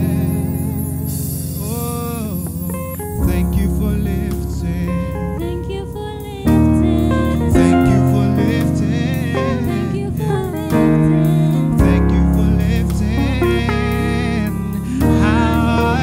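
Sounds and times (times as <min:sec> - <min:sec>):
man singing gospel song: 0:00.0 - 0:06.2, 0:06.8 - 0:16.0
electronic keyboard chords: 0:00.0 - 0:16.0.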